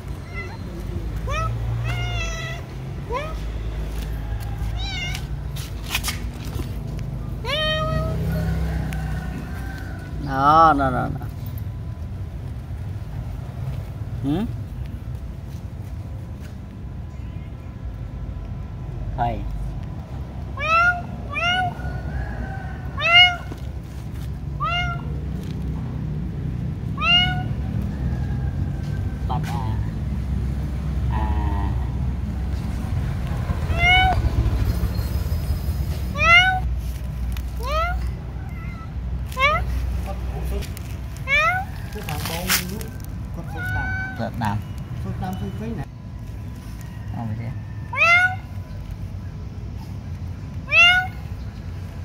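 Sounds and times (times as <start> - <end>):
cat meowing: 0.0 - 3.5, 4.6 - 5.5, 7.4 - 8.6, 20.5 - 21.8, 23.0 - 23.6, 24.6 - 25.2, 26.9 - 27.7, 33.6 - 34.6, 36.1 - 36.7, 37.6 - 39.8, 41.2 - 41.9, 43.4 - 44.7, 47.9 - 48.6, 50.6 - 51.4.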